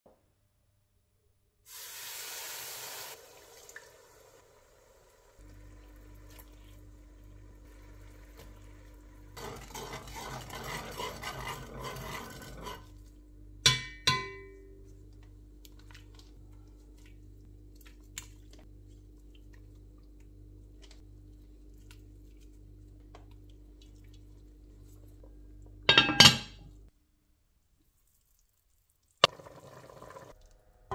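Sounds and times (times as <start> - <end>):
steady low hum: 5.4 - 26.9
metal spoon stirring liquid: 9.4 - 13.1.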